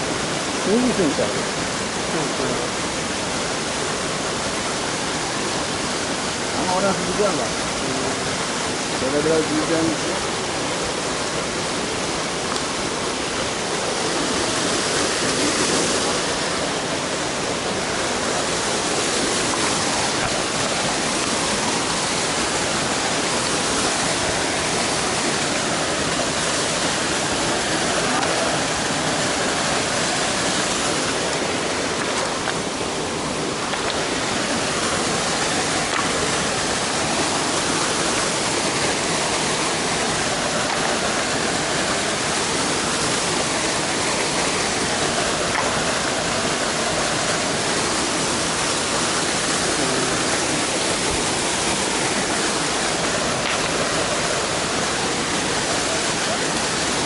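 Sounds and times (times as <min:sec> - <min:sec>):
waterfall rushing: 0:00.0 - 0:57.0.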